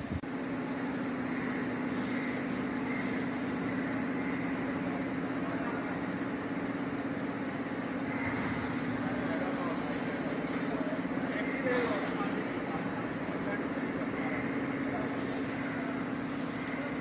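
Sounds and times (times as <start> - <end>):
even whirring noise: 0.0 - 17.0
heavy machinery humming: 0.0 - 17.0.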